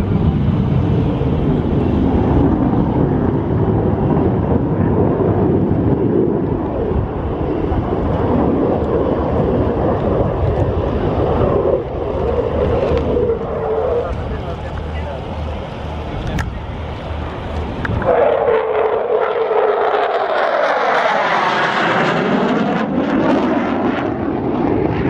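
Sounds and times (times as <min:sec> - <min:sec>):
fighter jet engine roar: 0:00.0 - 0:25.0.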